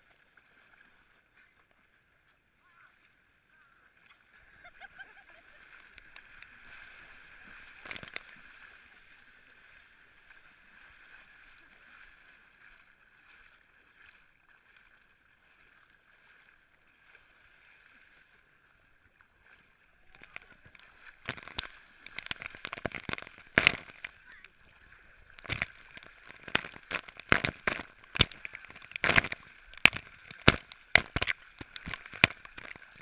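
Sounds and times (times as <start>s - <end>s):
water splashing: 2.7s - 33.0s
water thrown at microphone: 25.4s - 33.0s.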